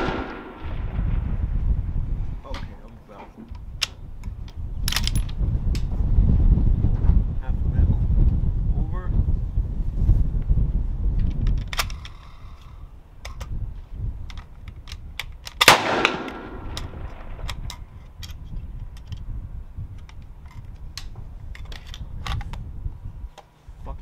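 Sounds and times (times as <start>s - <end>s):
suppressed rifle shot: 0.0s - 1.1s, 15.6s - 17.7s
low rumble: 0.0s - 2.9s, 15.0s - 23.3s.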